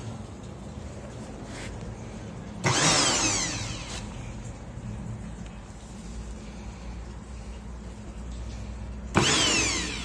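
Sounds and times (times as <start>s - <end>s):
immersion blender motor whine: 2.6s - 4.1s, 9.1s - 10.0s.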